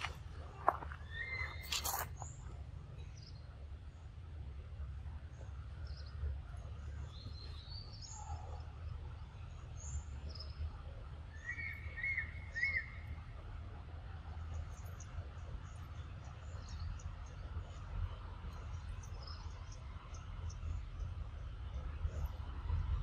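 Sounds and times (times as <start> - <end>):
steady low rumble: 0.0 - 23.0
faint high bird chirps: 1.0 - 2.4, 11.4 - 13.2.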